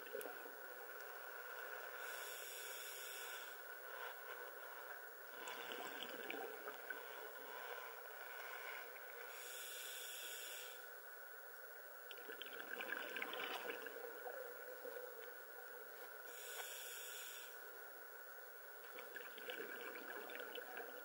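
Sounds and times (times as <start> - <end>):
steady faint hiss: 0.0 - 21.0
regulator inhale hiss: 1.8 - 6.1, 7.0 - 10.9, 16.3 - 17.7
bubbling exhaled air underwater: 5.5 - 7.0, 12.2 - 14.6, 18.9 - 21.0.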